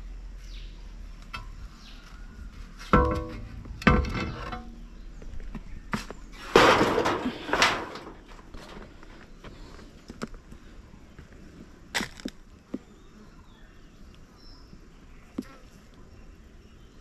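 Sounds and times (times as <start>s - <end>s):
knocks of wood and tin being handled: 2.8s - 4.8s, 5.5s - 8.9s.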